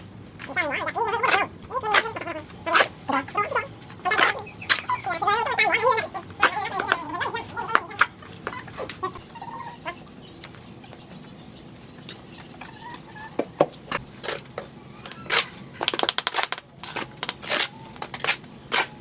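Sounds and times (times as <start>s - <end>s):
shovel and bucket scraping: 13.9s - 15.6s.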